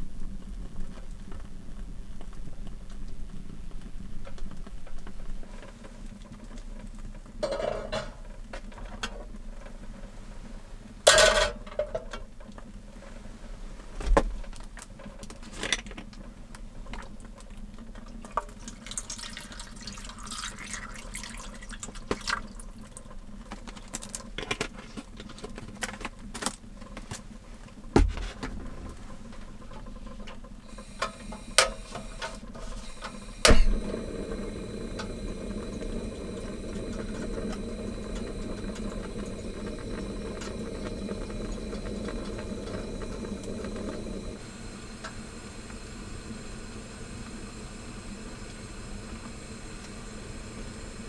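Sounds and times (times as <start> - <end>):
water pouring into metal tin: 18.2 - 23.0
gas burner flame hissing: 27.5 - 51.0
burner ignition click: 30.7 - 51.0.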